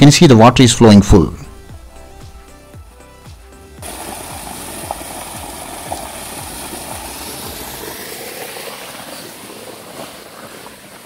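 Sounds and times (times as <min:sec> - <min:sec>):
water gushing from a pipe: 0:03.8 - 0:11.0.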